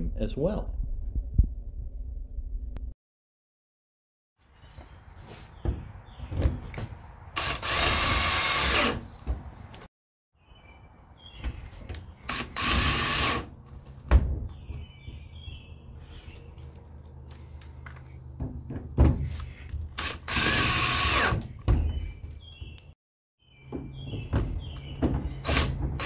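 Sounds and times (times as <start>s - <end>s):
cordless drill driving screws: 7.4s - 9.0s, 12.3s - 13.5s, 20.0s - 21.4s.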